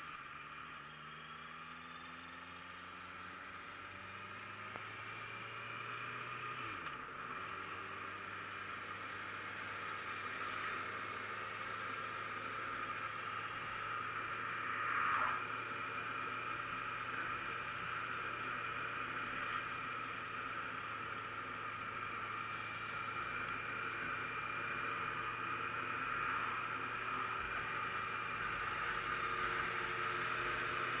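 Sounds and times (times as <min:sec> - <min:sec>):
wind and road noise: 0:03.4 - 0:31.0
low hum: 0:12.8 - 0:30.9.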